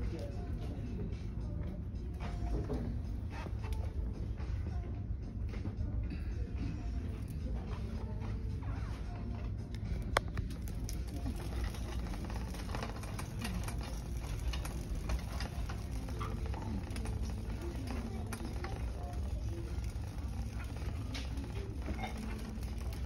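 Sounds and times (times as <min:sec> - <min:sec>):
steady low hum: 0:00.0 - 0:23.0
indistinct background voices: 0:05.8 - 0:23.0.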